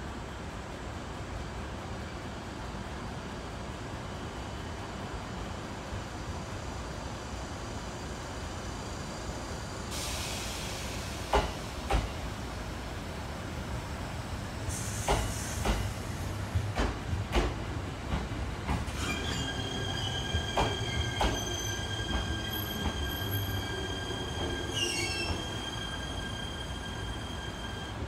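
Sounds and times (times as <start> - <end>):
train wheels knocking on rail joints: 11.3 - 12.2, 15.0 - 19.0, 20.2 - 23.5
high brake squeal: 18.9 - 28.0
short falling squeal: 18.9 - 28.0.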